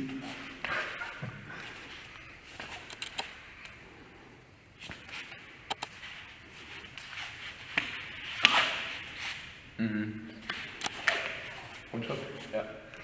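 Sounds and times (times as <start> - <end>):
feet shuffling on foam mats: 4.8 - 9.4.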